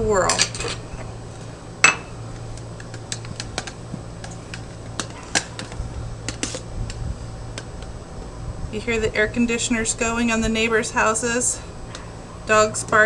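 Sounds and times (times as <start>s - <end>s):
air conditioners humming: 0.0s - 13.0s
spoon scraping plastic jar: 2.5s - 7.0s.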